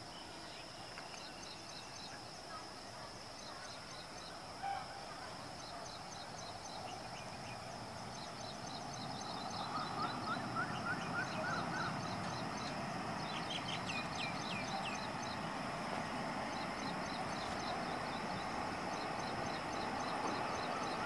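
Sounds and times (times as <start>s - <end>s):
high insect drone: 0.0s - 21.0s
birds chirping: 3.4s - 21.0s
approaching train rumble: 6.6s - 21.0s.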